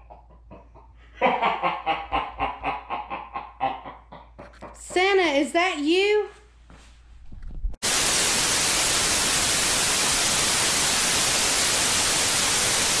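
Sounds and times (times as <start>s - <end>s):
tv static hiss: 7.8s - 13.0s.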